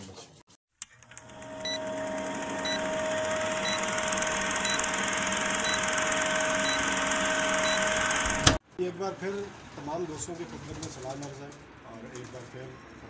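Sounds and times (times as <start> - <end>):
short high beeps: 5.6 - 8.1.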